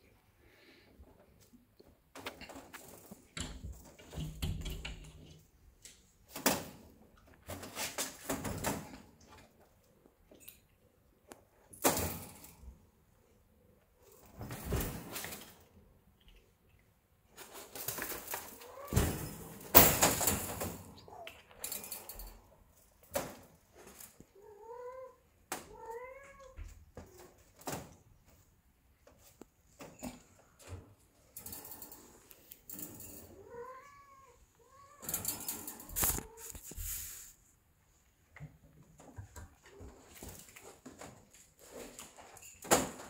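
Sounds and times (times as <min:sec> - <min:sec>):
cats rustling and bumping: 0:00.9 - 0:10.5, 0:13.8 - 0:24.4, 0:25.4 - 0:33.4, 0:35.0 - 0:37.3, 0:37.9 - 0:43.0
cat meowing: 0:33.4 - 0:35.1
rustling and scuffling: 0:35.0 - 0:37.4.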